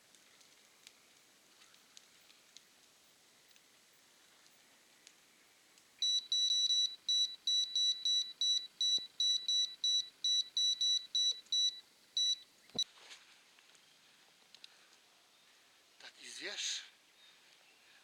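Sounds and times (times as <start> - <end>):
electronic bite alarm beeping: 6.0 - 12.4.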